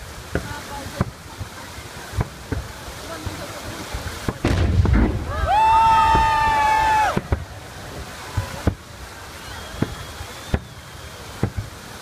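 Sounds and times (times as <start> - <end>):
fountain water rushing: 0.0 - 12.0
fireworks pops: 0.3 - 12.0
people cheering: 5.0 - 12.0.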